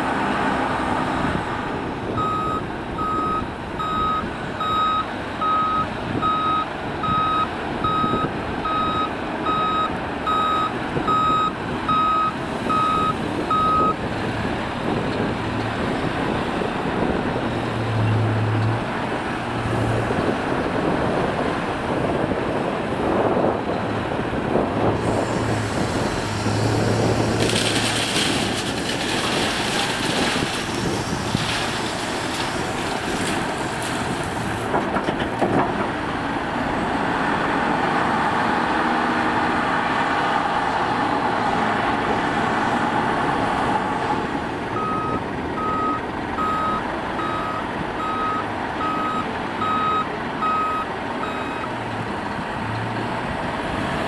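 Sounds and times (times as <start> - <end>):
diesel engine under load: 0.0 - 54.0
reversing alarm beeping: 2.2 - 14.0, 44.8 - 51.7.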